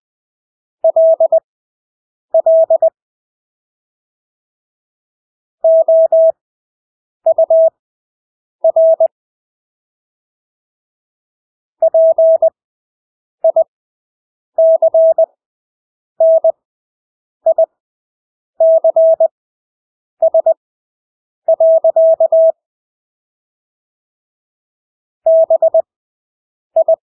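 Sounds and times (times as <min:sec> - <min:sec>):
morse code beeps: 0:00.9 - 0:01.4, 0:02.4 - 0:03.0, 0:05.7 - 0:06.4, 0:07.3 - 0:07.8, 0:08.6 - 0:09.1, 0:11.8 - 0:12.5, 0:13.4 - 0:13.7, 0:14.6 - 0:15.3, 0:16.2 - 0:16.6, 0:18.6 - 0:19.3, 0:20.2 - 0:20.6, 0:21.5 - 0:22.6, 0:25.3 - 0:25.8, 0:26.8 - 0:27.0.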